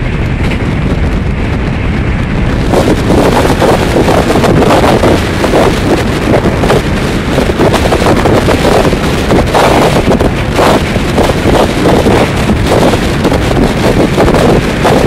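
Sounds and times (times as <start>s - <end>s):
train running noise: 0.0s - 15.0s
wind buffeting microphone: 0.0s - 15.0s.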